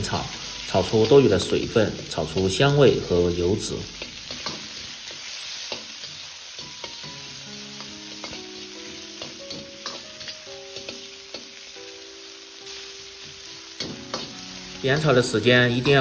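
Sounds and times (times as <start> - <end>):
pork sizzling in a wok: 0.0 - 16.0
soft background music: 0.0 - 16.0
metal spatula scraping wok: 3.8 - 11.5, 13.8 - 14.6.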